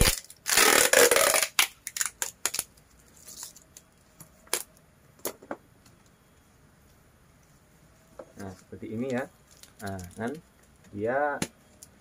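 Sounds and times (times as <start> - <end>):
tape tearing: 0.0 - 3.8
plastic wrap crackling: 0.0 - 4.7, 8.4 - 10.8.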